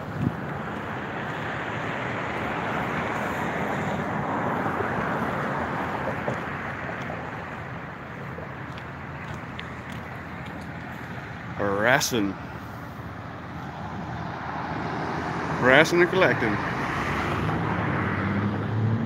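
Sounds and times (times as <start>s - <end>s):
passing vehicle: 0.0s - 19.0s.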